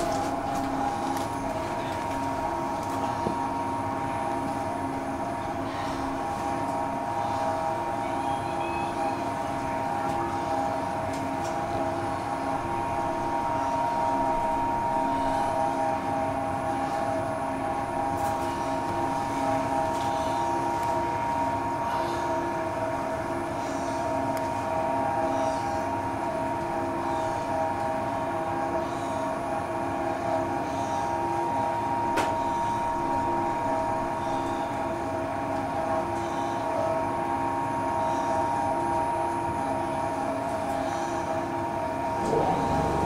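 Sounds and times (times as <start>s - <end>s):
tram motor whine: 0.0s - 43.0s
wheels rumbling on rails: 42.1s - 43.0s.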